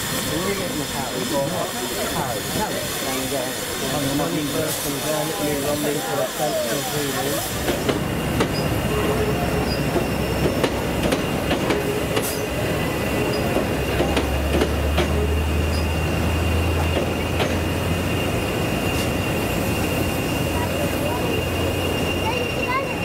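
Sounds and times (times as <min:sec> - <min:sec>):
high train squeal: 0:00.0 - 0:23.0
low train hum: 0:00.0 - 0:23.0
train wheels clicking over rail joints: 0:06.4 - 0:08.9, 0:09.5 - 0:21.0.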